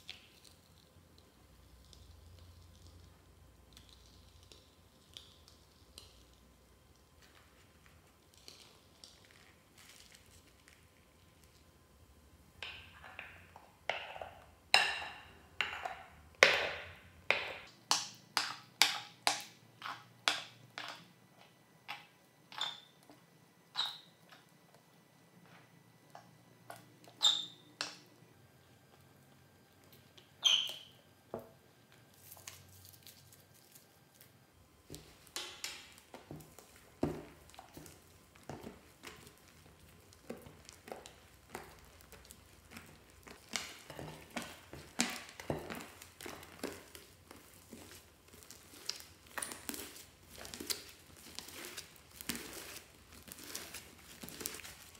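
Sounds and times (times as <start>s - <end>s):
slime squeaking: 23.7s - 24.2s, 27.1s - 27.8s, 30.4s - 31.0s, 37.3s - 54.9s.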